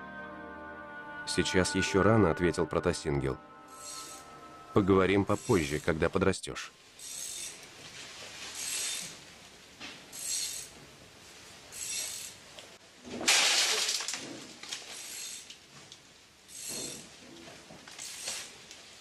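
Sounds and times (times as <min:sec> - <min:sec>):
rhythmic rasping strokes: 0:03.6 - 0:06.1.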